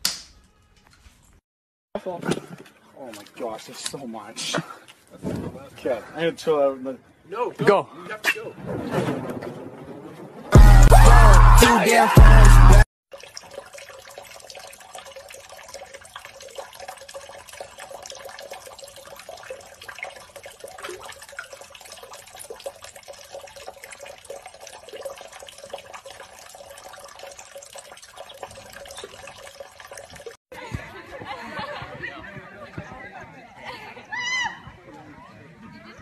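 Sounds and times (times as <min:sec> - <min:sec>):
water splashing in sink: 0:13.1 - 0:30.4.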